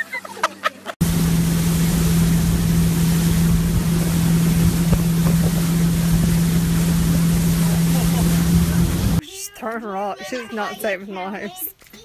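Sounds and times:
motorboat engine hum: 0:00.8 - 0:09.2
rushing water: 0:01.0 - 0:09.2.

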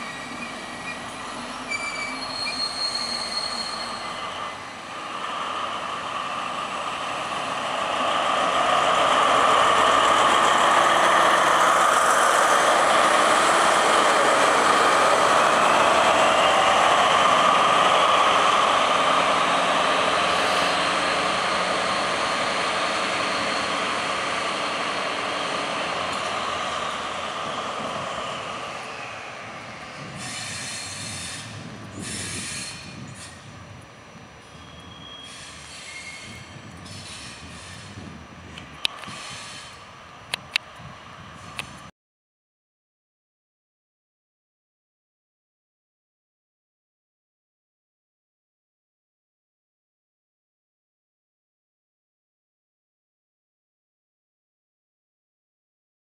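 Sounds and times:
train passing with squealing wheels: 0:00.0 - 0:41.9.

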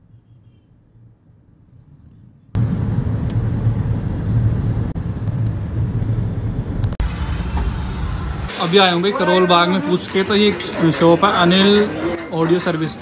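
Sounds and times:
car engine and tyre rumble: 0:01.0 - 0:08.5.

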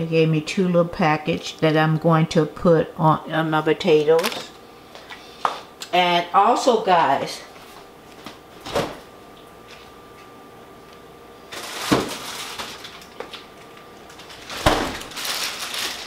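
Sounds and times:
faint steady hum: 0:00.0 - 0:16.0
rustling: 0:14.1 - 0:16.0.

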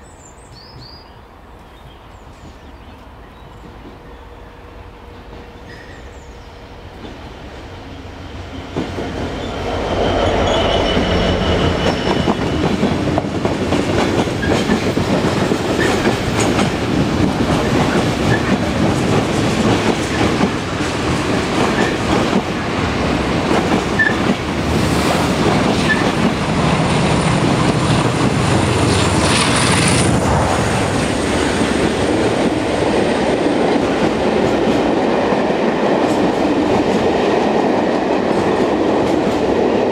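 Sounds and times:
diesel locomotive engine running: 0:07.8 - 0:34.7
high wheel squeal: 0:09.4 - 0:12.7.

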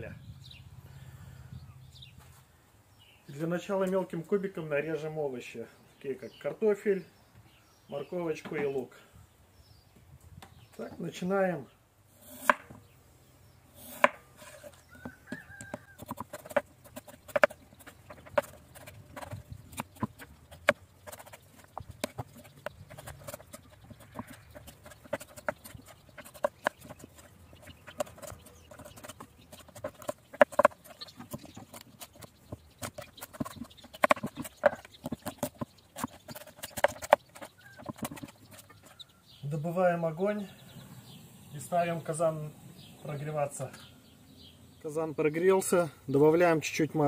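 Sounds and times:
knife chopping on wooden board: 0:12.3 - 0:12.8, 0:13.8 - 0:21.3.

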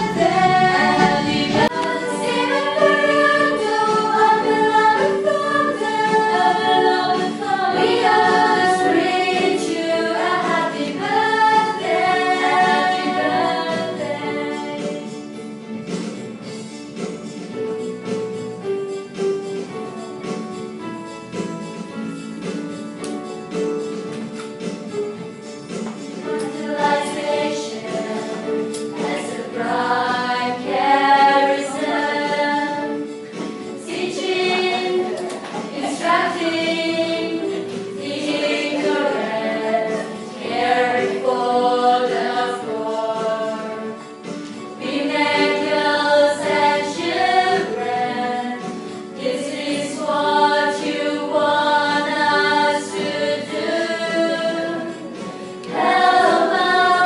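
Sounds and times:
choir singing long held notes: 0:00.0 - 0:14.9, 0:26.3 - 0:44.1, 0:44.8 - 0:57.0.

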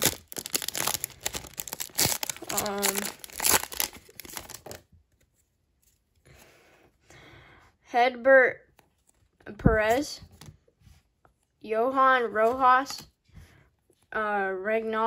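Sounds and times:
plastic wrapper tearing and crinkling: 0:00.0 - 0:04.9.

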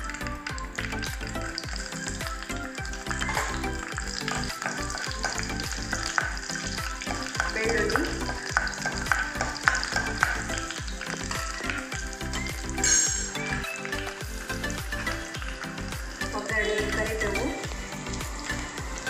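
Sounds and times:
garlic and seeds sizzling in oil: 0:00.0 - 0:19.0.

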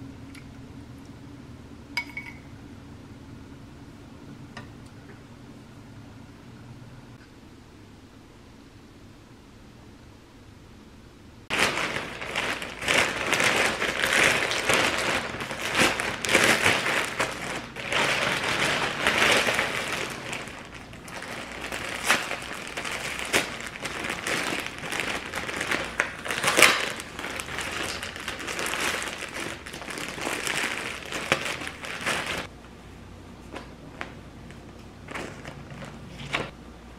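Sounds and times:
plastic wrapping crinkling: 0:11.5 - 0:32.5, 0:34.0 - 0:36.5.

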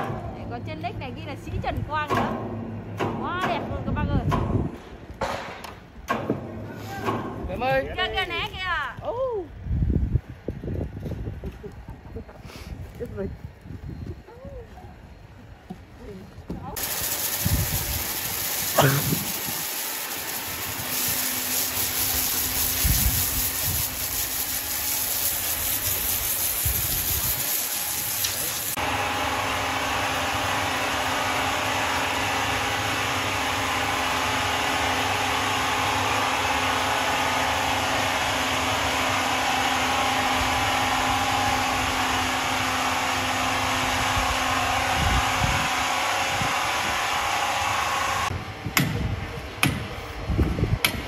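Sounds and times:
sawmill machinery humming: 0:16.8 - 0:48.7.

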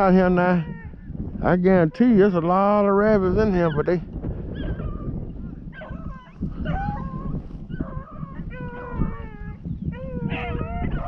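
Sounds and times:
hounds baying: 0:03.5 - 0:11.0.

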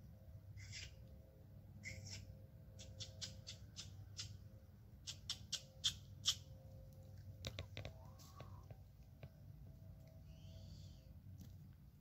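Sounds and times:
squirrel call chirps: 0:00.6 - 0:01.0, 0:01.8 - 0:04.4, 0:05.0 - 0:06.5.

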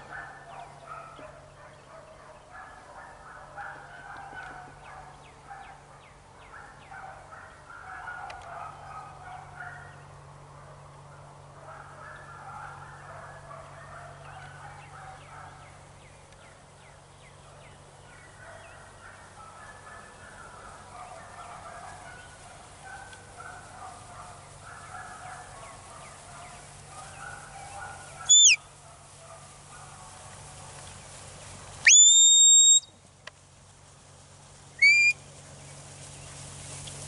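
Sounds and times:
birds gabbling: 0:11.8 - 0:29.8
sharp falling whistle: 0:31.9 - 0:32.8.

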